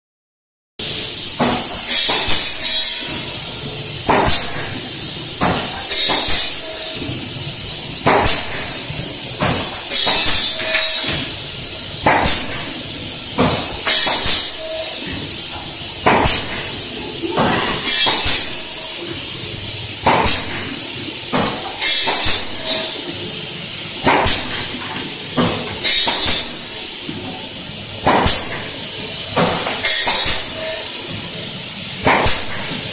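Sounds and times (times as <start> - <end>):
steady high hiss: 0.8 - 32.9.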